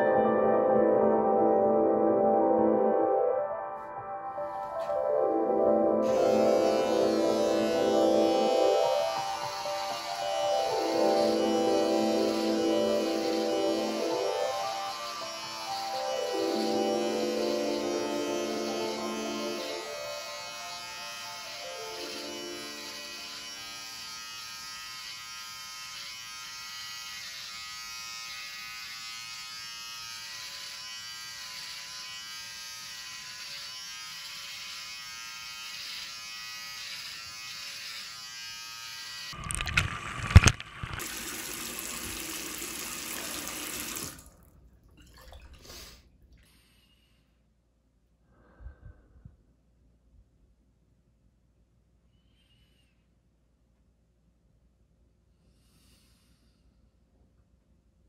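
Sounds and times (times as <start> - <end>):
electric beard trimmer buzzing: 6.0 - 39.4, 40.0 - 44.2.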